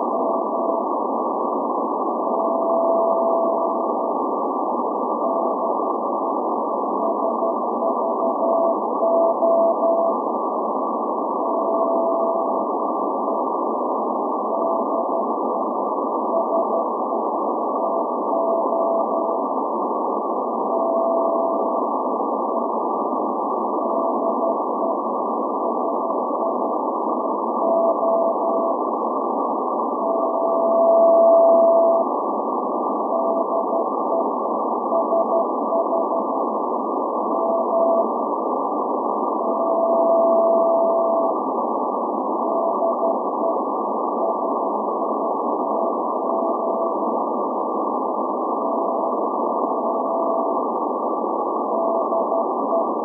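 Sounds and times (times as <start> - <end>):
shortwave band noise hiss: 0.0 - 53.0
morse code tone: 30.0 - 32.1, 33.1 - 34.2, 39.4 - 41.4, 51.7 - 53.0.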